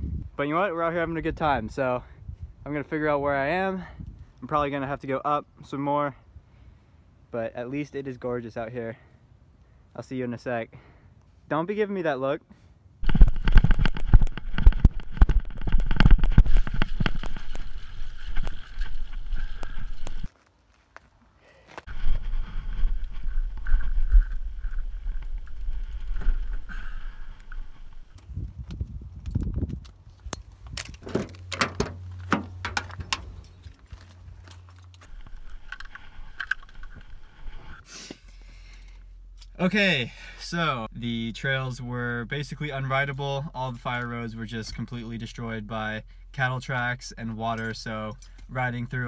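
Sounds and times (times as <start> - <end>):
wind rumbling on microphone: 0.0 - 0.4, 1.0 - 3.3, 3.9 - 4.4, 21.9 - 31.3
bike knocks and rattles: 30.8 - 35.0.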